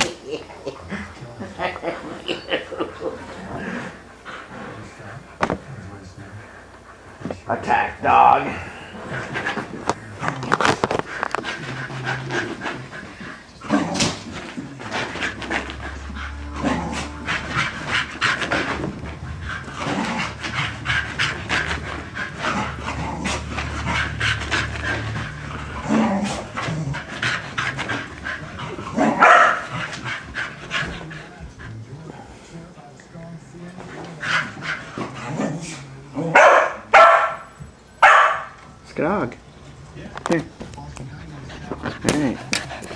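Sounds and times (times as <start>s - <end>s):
dog panting hard: 11.1s - 13.5s, 14.4s - 32.4s, 33.9s - 35.2s, 41.0s - 42.9s
dog barking: 29.0s - 29.7s, 36.3s - 38.6s.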